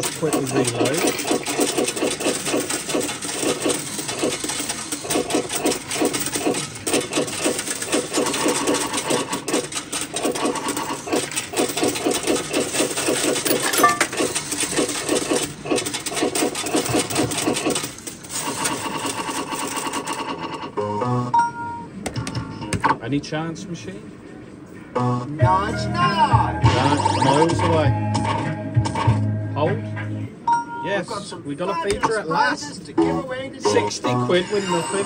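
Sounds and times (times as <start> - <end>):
coins clinking through coin slot: 0.0 - 20.6.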